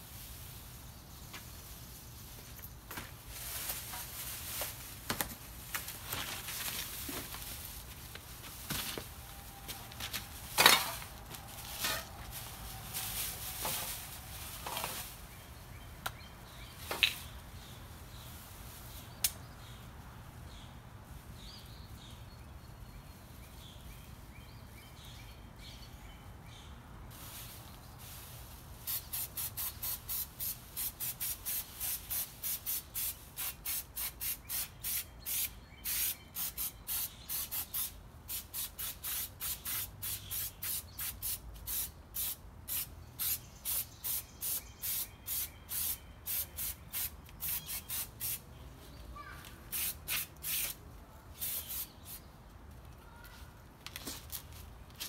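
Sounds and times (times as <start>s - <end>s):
spray can spurts: 28.9s - 48.4s, 49.7s - 50.8s, 51.4s - 52.3s.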